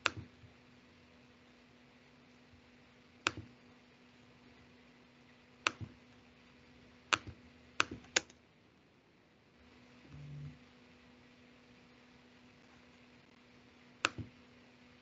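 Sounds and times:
faint steady hum: 0.0s - 15.0s
mouse and keyboard clicks: 3.2s - 3.5s, 5.6s - 6.0s, 7.1s - 8.4s, 14.0s - 14.3s.

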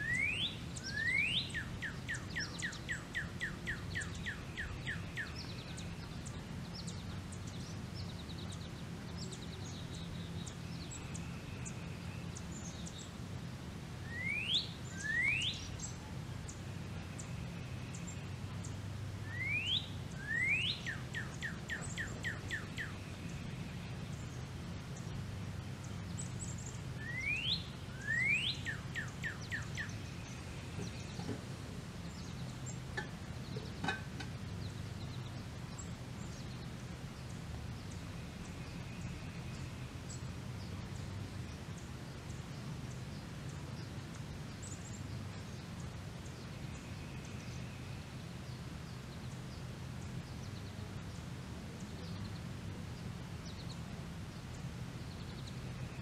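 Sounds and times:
faint bird chirps: 0.0s - 13.0s, 14.0s - 24.4s, 25.8s - 31.4s
songbird whistling song: 0.0s - 13.1s, 14.0s - 25.2s, 25.8s - 31.4s
low steady hum: 0.0s - 56.0s.

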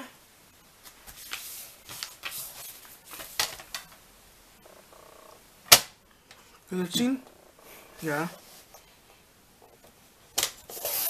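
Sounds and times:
paper rustling: 0.8s - 3.9s.

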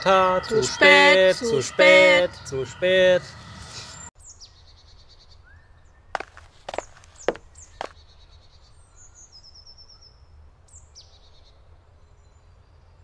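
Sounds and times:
songbirds singing: 0.0s - 13.0s
footsteps on a path: 6.1s - 8.0s.

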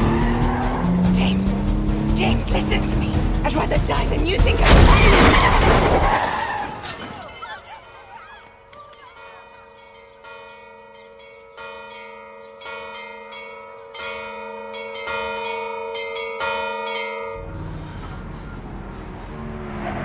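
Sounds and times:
car engine rumble: 0.0s - 4.8s, 17.4s - 20.0s
church bells ringing: 7.7s - 18.6s.

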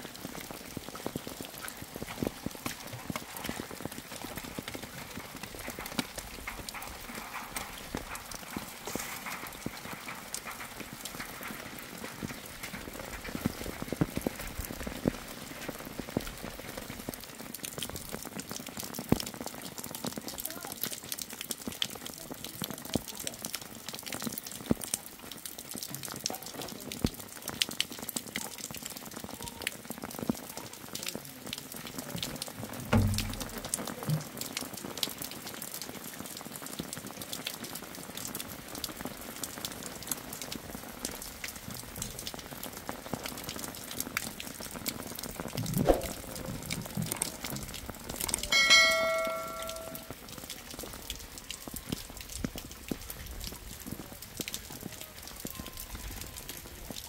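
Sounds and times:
rain pattering and dripping: 0.0s - 57.0s
dull thump: 32.8s - 33.6s
metal object struck and ringing: 48.5s - 50.1s.

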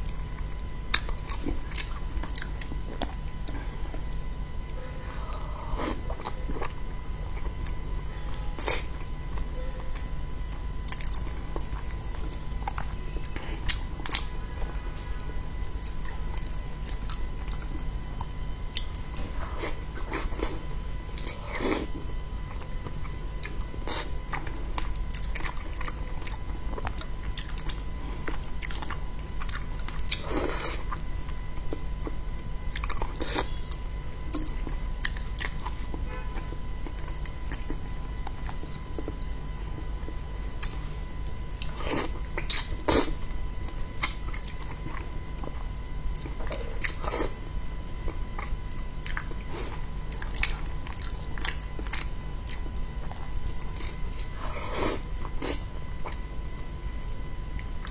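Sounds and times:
wet chewing and biting: 0.0s - 4.0s, 22.5s - 36.0s, 36.8s - 47.4s, 48.0s - 56.3s
steady low hum: 0.0s - 57.9s.

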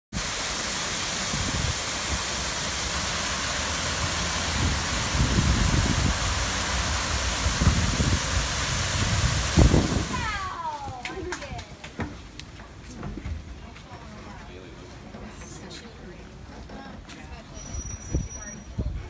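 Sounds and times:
rushing falling water: 0.1s - 11.3s
low rumbles: 0.8s - 11.0s.

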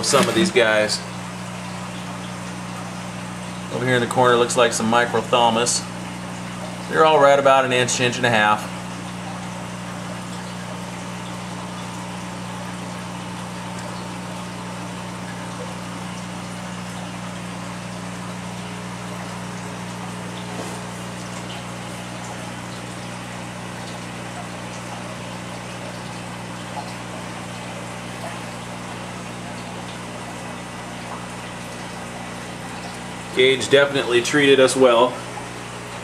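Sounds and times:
pumps humming: 0.0s - 36.0s.

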